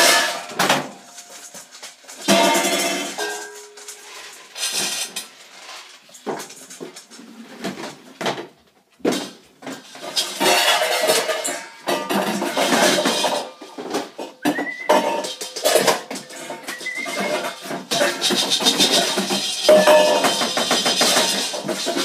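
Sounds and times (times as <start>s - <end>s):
dishes clattering in sink: 0.0s - 1.5s, 2.2s - 5.1s, 9.1s - 22.0s.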